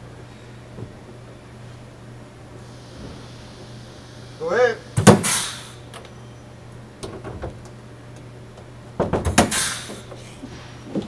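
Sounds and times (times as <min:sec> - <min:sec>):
air exhaust hiss: 0:00.0 - 0:06.9, 0:09.2 - 0:11.0.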